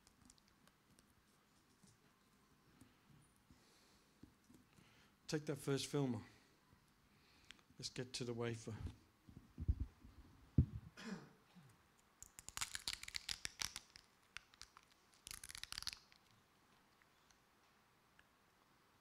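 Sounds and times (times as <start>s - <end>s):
plastic film peeling: 12.2s - 16.4s.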